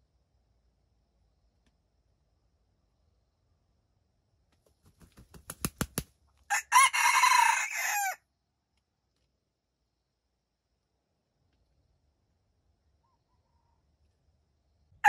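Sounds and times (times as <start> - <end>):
rooster wings clapping: 4.6 - 6.2
rooster crowing: 6.5 - 8.2.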